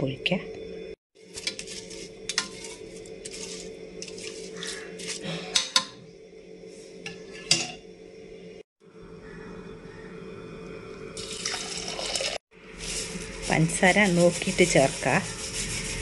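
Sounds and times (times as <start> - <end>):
steady hum: 0.0 - 16.0
utensil clinking on metal pot: 1.4 - 6.0, 7.1 - 7.8.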